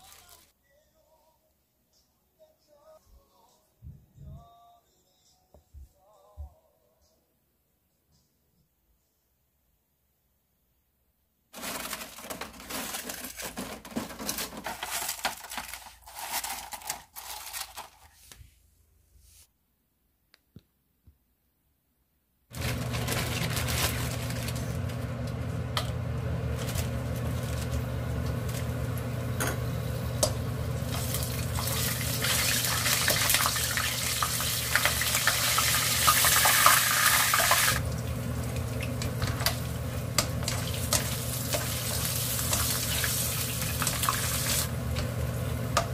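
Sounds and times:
plastic trays knocking and rattling: 11.6s - 16.6s
peppers sizzling in hot oil: 22.6s - 45.9s.

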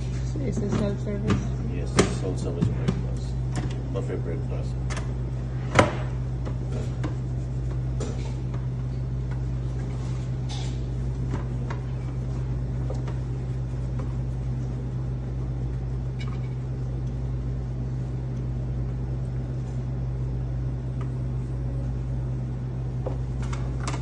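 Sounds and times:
low mechanical hum: 0.0s - 24.0s.

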